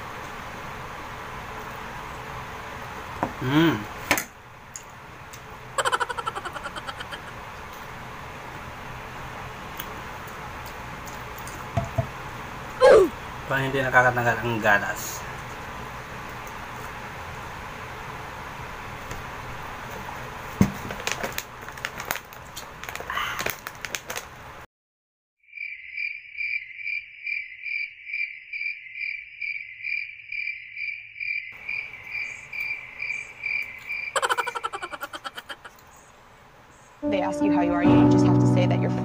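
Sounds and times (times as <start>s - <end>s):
cricket chirp sound effect: 25.5s - 35.6s.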